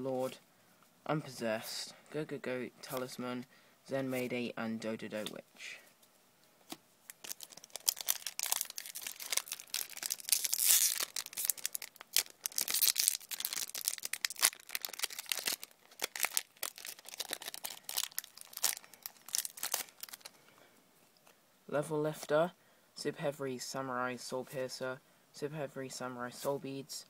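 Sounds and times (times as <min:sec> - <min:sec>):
foil wrapper crinkling and tearing: 0:07.1 - 0:20.3.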